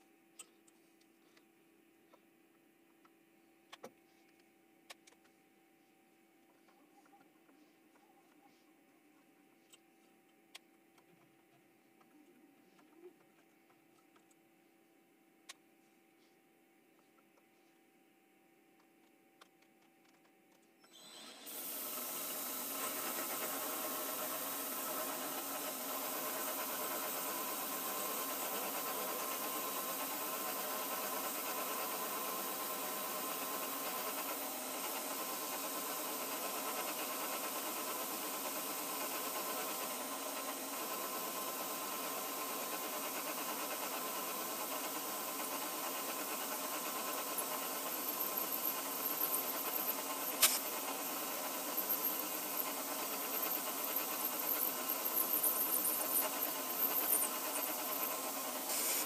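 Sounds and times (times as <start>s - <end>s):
milling machine cutting metal: 20.9s - 59.0s.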